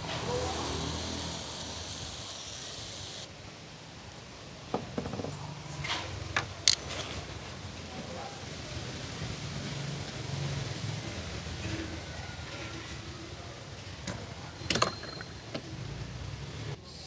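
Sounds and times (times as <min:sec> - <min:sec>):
aerosol can spraying hiss: 0:00.1 - 0:03.3.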